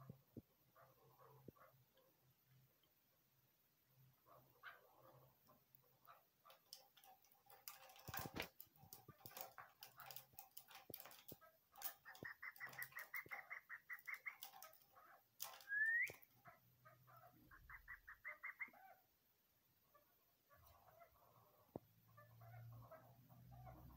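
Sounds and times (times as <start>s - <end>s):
scratchy rustle: 4.6s - 15.9s
partridge clucking and calling: 8.0s - 19.1s, 19.8s - 23.9s
partridge rising call: 15.6s - 16.3s, 17.3s - 19.0s.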